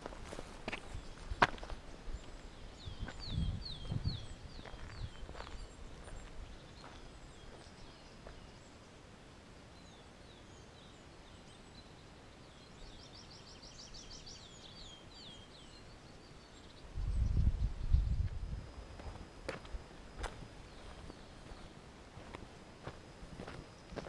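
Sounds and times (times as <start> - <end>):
songbirds singing: 0.0 - 24.0.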